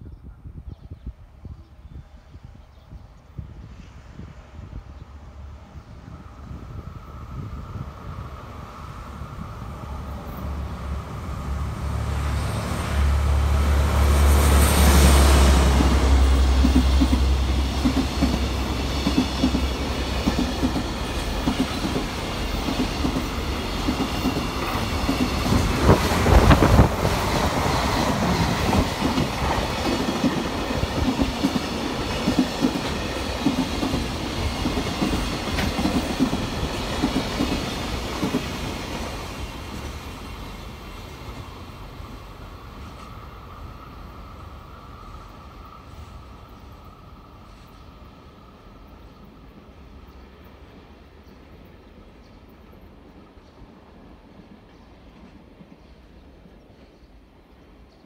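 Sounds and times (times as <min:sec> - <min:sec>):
express train passing: 0:01.1 - 0:58.0
diesel locomotive engine: 0:03.1 - 0:57.5
train wheels clattering over rail joints: 0:16.6 - 0:38.7.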